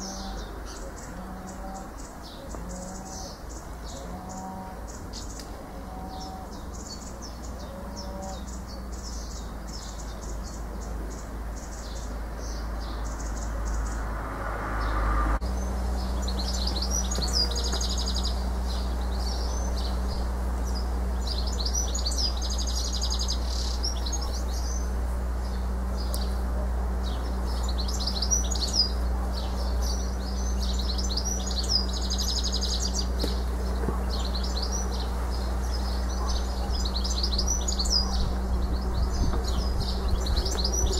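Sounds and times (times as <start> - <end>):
steady low rumble: 0.0 - 40.9
house martins twittering: 15.5 - 40.9.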